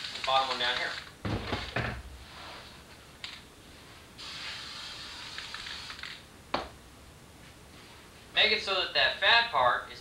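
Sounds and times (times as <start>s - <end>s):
aerosol spray hissing: 4.2s - 5.9s.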